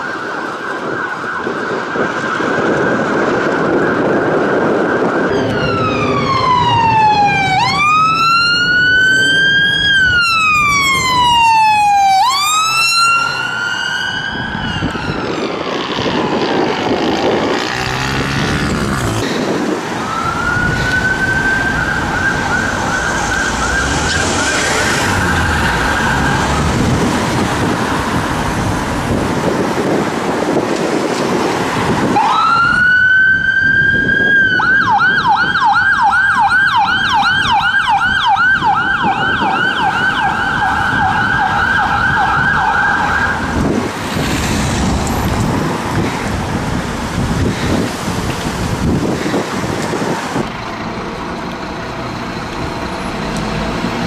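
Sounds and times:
ambulance siren yelping: 0.0 - 16.7, 18.4 - 30.0, 32.0 - 43.8
police siren wailing: 0.0 - 54.0.

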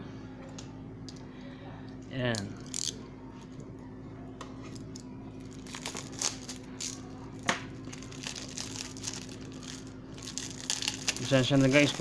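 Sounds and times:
shrink wrap crinkling and tearing: 5.4 - 7.1, 7.8 - 12.0.

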